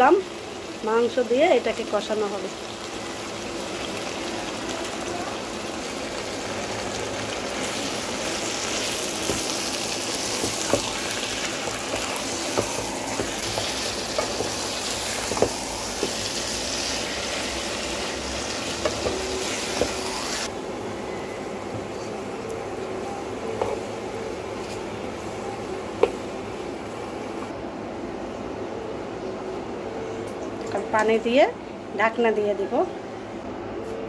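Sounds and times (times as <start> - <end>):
meat sizzling in a pot: 0.0 - 20.5.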